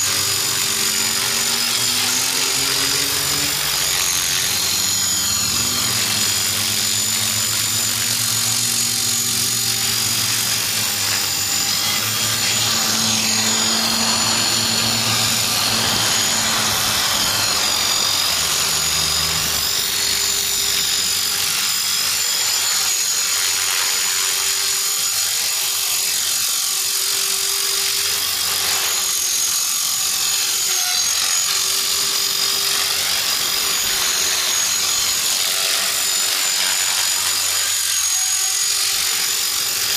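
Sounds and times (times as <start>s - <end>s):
rotor blades humming: 0.0s - 20.3s
rc helicopter motor whine: 0.0s - 39.9s.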